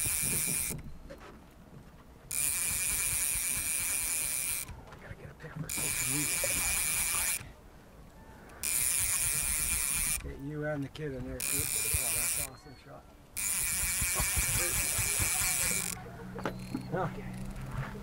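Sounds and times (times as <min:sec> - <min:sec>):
fly reel drag buzzing: 0:00.0 - 0:00.8, 0:02.3 - 0:04.8, 0:05.7 - 0:07.5, 0:08.5 - 0:10.3, 0:11.4 - 0:12.5, 0:13.4 - 0:16.0.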